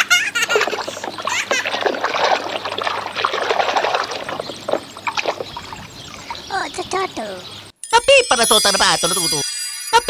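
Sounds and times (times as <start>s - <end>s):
water splashing in a pool: 0.5s - 6.5s.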